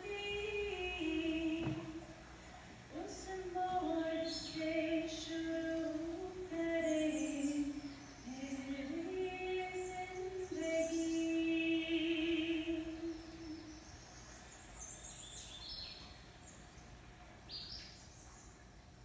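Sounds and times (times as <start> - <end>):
woman singing unaccompanied: 0.0 - 14.0
birds chirping: 0.0 - 19.0.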